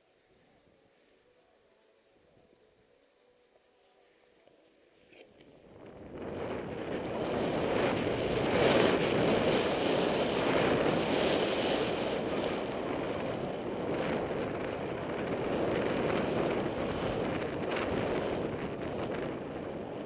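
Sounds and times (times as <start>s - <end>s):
skis running through powder snow: 5.0s - 20.0s
wind rushing over microphone: 5.5s - 20.0s.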